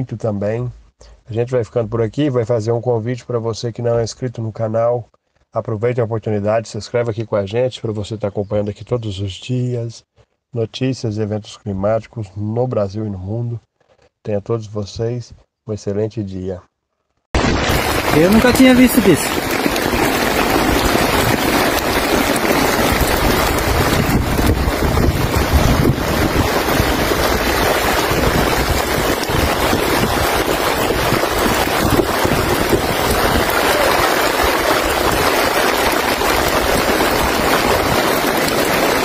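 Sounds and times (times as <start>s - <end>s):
heavy rain: 17.4s - 39.0s
wind buffeting microphone: 19.3s - 39.0s.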